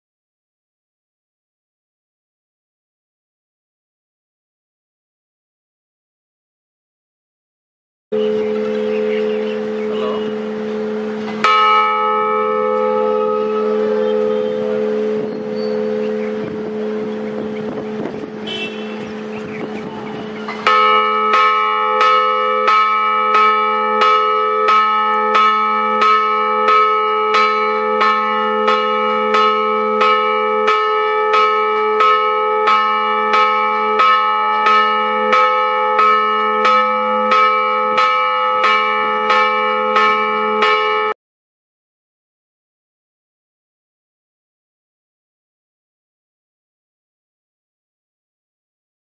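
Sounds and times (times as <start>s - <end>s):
church bell tolling: 8.1s - 41.2s.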